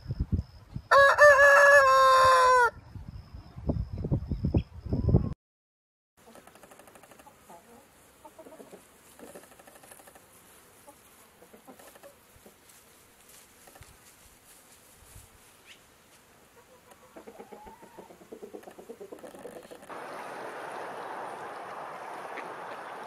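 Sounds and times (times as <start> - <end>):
chickens clucking faintly: 6.2 - 12.8, 16.4 - 23.0.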